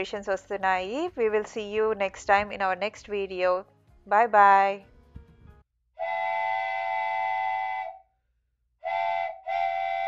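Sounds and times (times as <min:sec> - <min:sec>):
miniature train whistle blasts: 0:06.0 - 0:08.1, 0:08.8 - 0:10.0.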